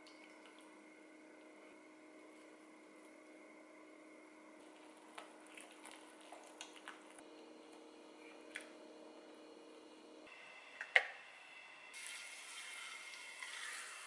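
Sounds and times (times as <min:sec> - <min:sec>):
faint steady hum: 0:00.0 - 0:14.0
wet squishing of batter mixing: 0:04.6 - 0:07.2.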